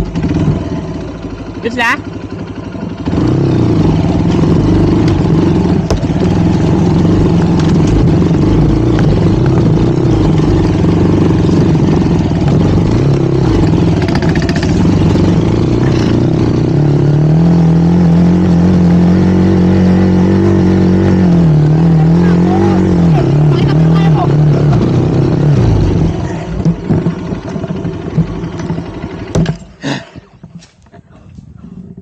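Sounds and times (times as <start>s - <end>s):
motorcycle engine revving: 0.0s - 30.7s.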